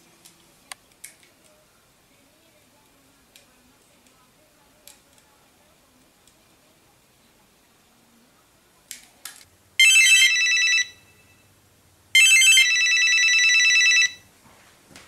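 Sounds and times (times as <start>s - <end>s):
phone warbling ring: 9.8s - 11.4s, 12.2s - 14.2s.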